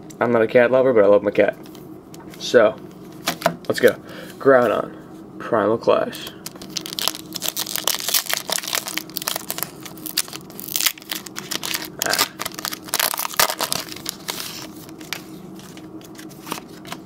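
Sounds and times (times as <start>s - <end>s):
cards rustling and clicking: 6.4s - 17.0s
foil wrapper crinkling and tearing: 6.4s - 17.0s.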